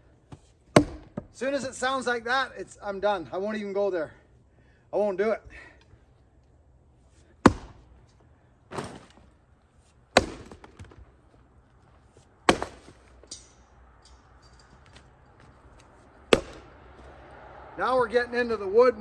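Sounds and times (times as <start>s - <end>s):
axe chopping wood: 0.7s - 1.3s, 7.4s - 7.9s, 10.2s - 11.0s, 12.5s - 13.2s, 16.3s - 16.8s.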